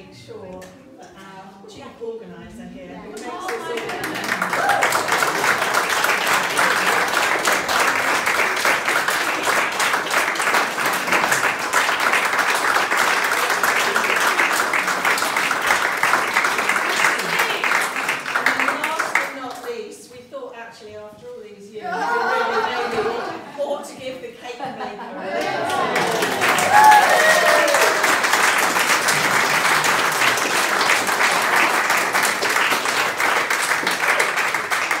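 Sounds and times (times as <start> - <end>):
group of people applauding: 3.2 - 19.8, 25.4 - 35.0.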